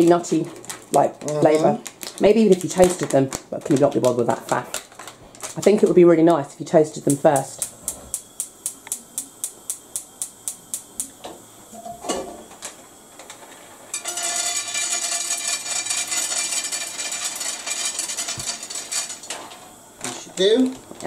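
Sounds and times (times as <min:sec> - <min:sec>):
pine nuts toasting in a pan: 0:00.0 - 0:21.0
gas hob igniter clicking: 0:07.0 - 0:13.4
pan clattering: 0:14.0 - 0:19.6.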